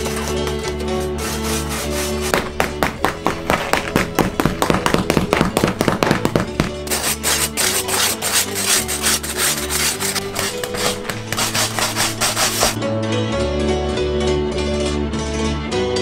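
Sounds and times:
knife scraping bread crust: 0.0 - 2.4, 6.8 - 12.8.

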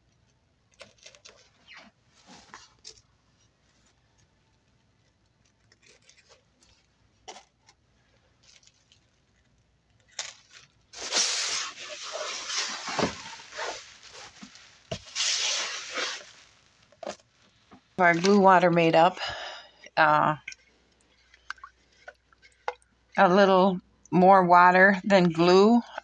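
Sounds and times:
plastic sheeting crinkling: 10.1 - 18.4.

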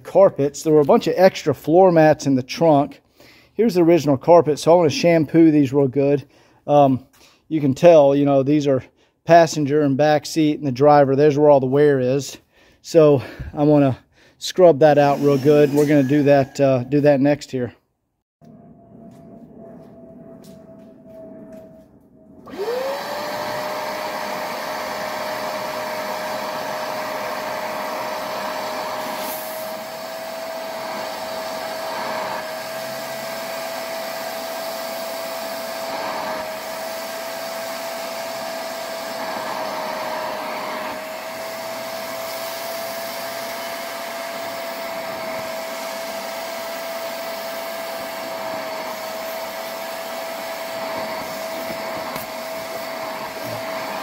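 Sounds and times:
carpet extractor motor whining: 22.4 - 54.0.

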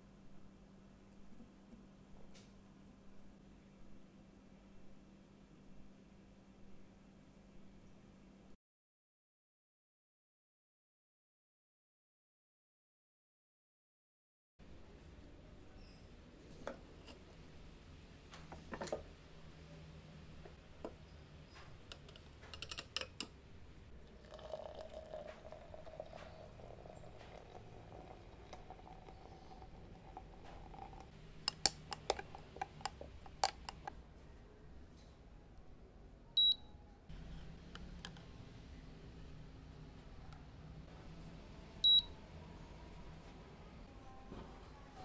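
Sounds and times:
faint low hum: 14.6 - 45.0.

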